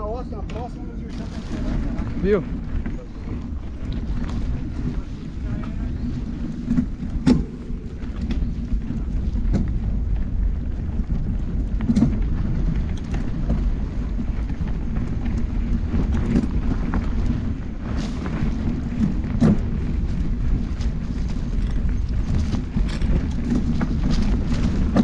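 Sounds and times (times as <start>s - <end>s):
bike knocks and rattles: 0.0s - 25.0s
bike tyres rumbling on dirt: 0.0s - 25.0s.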